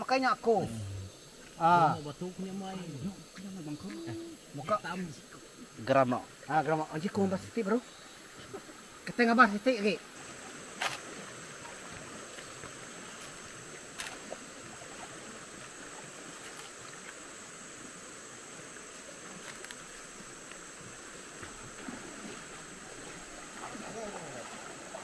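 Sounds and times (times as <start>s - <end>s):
stream flowing over stones: 1.2s - 25.0s.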